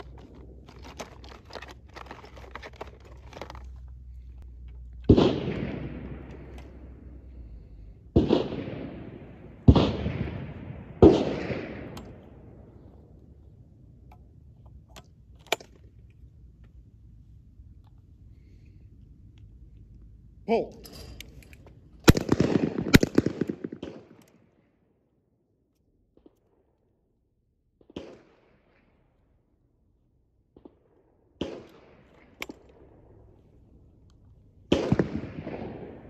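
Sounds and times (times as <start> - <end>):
shotgun shots echoing: 5.0 - 12.7, 22.0 - 24.2, 34.7 - 36.0
gun handling clicks: 14.0 - 16.8, 20.8 - 24.4, 32.2 - 32.8.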